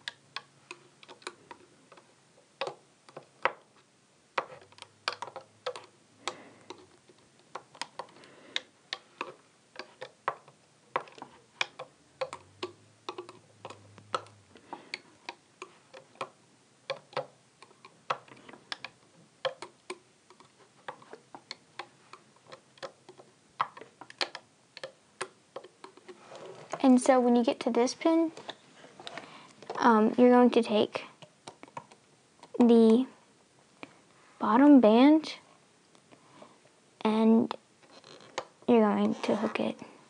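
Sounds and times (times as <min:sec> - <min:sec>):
loom hook clicking on plastic pins: 0:00.0 - 0:03.7, 0:04.4 - 0:26.9.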